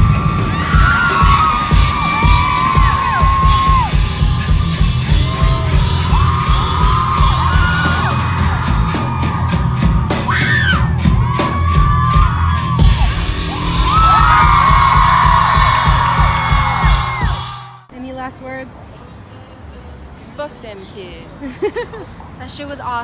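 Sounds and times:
live rock band playing: 0.0 - 17.8
voices yelling and singing: 0.0 - 17.8
rising shout: 0.0 - 17.9.

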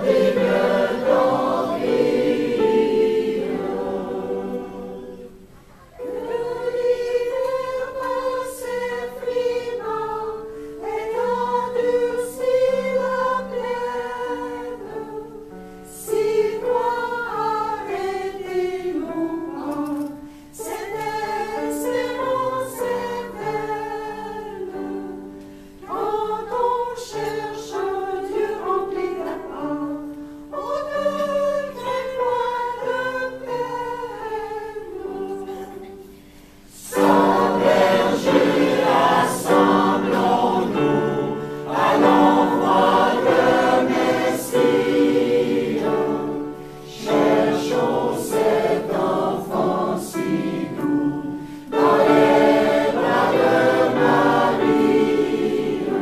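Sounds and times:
mixed choir singing: 0.0 - 56.0
singers breathing: 36.0 - 36.7, 51.3 - 51.7.

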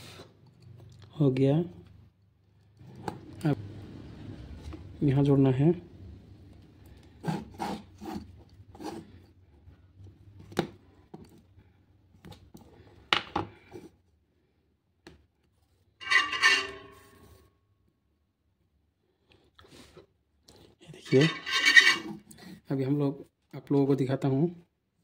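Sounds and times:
loud rasping scrape: 16.0 - 17.4, 21.0 - 22.6
wire stripper clicks and scrapes: 16.0 - 17.4, 21.0 - 22.4.

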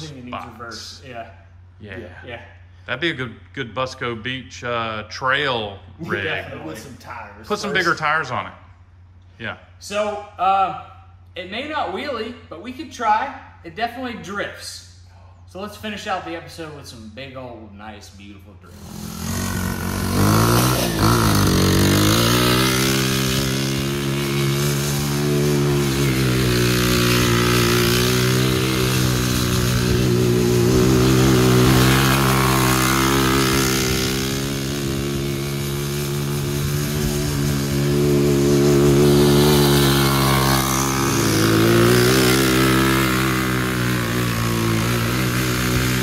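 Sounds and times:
go kart engine revving: 18.7 - 46.0.

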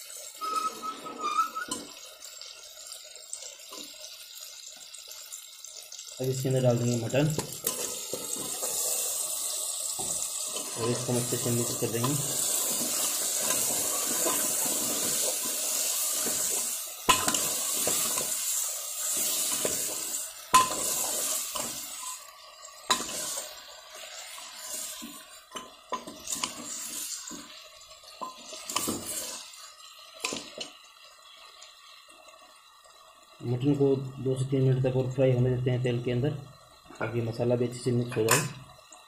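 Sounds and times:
meat sizzling in oil: 0.0 - 39.0
ladle scraping and knocking pot: 28.2 - 29.4.

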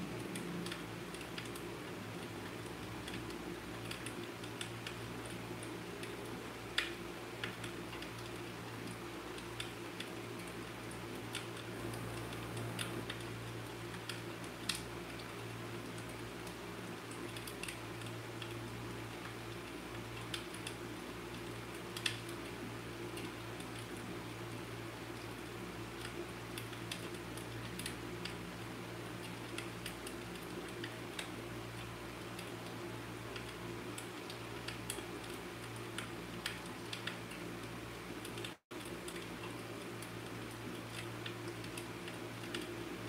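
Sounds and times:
steady low hum: 0.0 - 43.0
light ticks and taps: 0.2 - 22.5.

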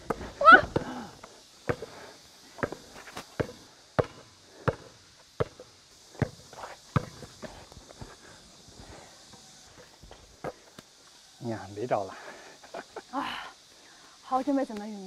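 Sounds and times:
basketball bouncing: 3.4 - 5.6, 7.0 - 7.3.

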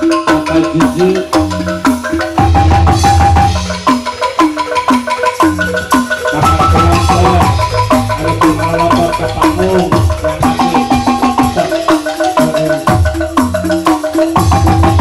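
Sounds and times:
bamboo tubes struck rhythmically: 0.0 - 15.0
hand drums with sliding pitch: 0.0 - 15.0
deep bass: 6.4 - 11.8.

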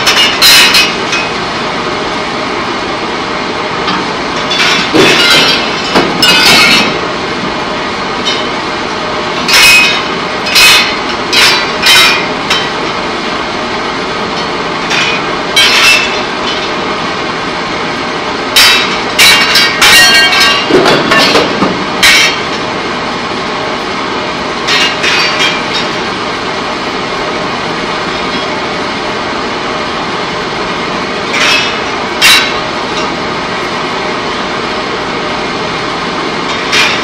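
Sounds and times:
sharp metallic clangs: 3.9 - 7.0, 9.4 - 12.8, 14.4 - 16.8, 18.6 - 22.6, 24.6 - 26.0, 31.3 - 33.2, 36.5 - 37.0.

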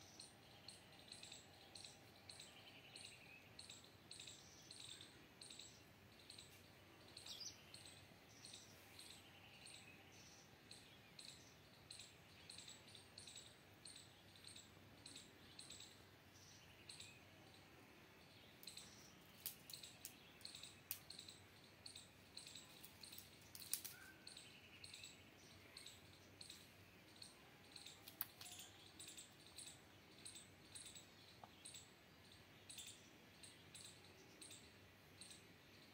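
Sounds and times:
faint high chirps: 0.0 - 35.9
sharp clicks: 18.6 - 21.3, 22.8 - 24.1, 27.8 - 28.6.

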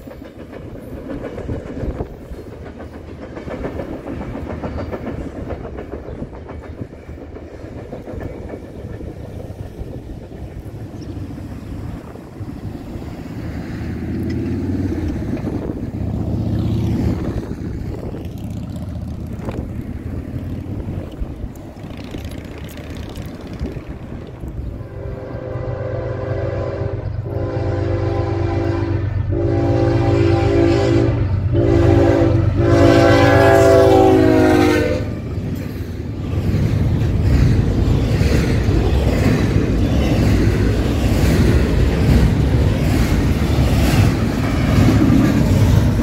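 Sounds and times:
train rumbling: 0.0 - 46.0
locomotive horn blasts: 24.8 - 35.2.

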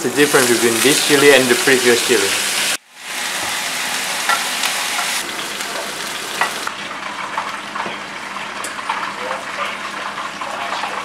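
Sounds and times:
vegetables sizzling in a pan: 0.0 - 7.6.

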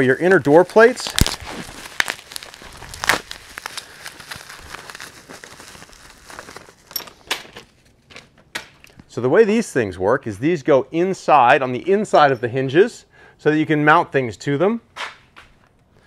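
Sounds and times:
bubble wrap crinkling: 0.0 - 8.4.

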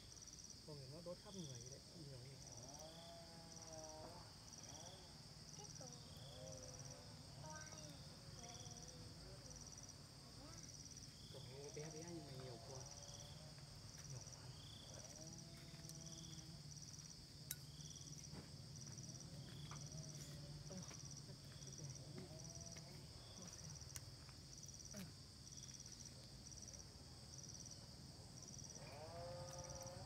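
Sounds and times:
insects chirping: 0.0 - 30.0.

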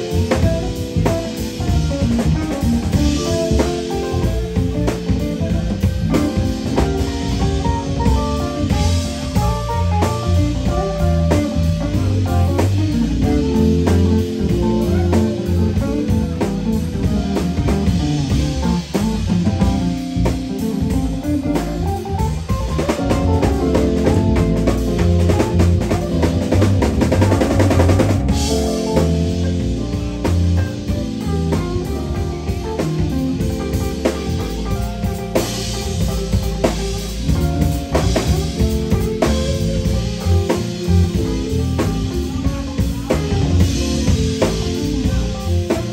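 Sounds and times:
drum kit: 0.0 - 45.9
electric bass: 0.0 - 45.9
electric guitar solo: 0.0 - 45.9.

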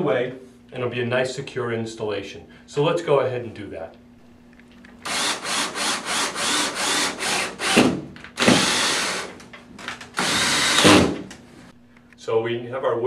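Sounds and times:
cordless drill driving screw: 5.0 - 11.3.

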